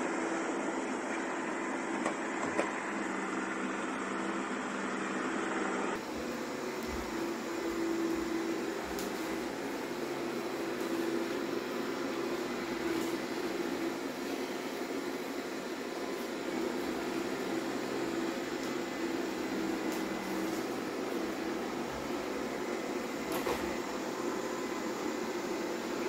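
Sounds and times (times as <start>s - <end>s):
robot vacuum whirring: 0.0s - 26.0s.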